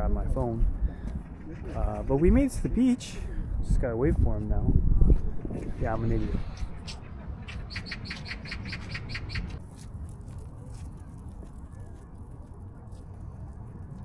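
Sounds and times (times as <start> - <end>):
steady low rumble: 0.0 - 14.0
bird chirping: 6.2 - 9.6.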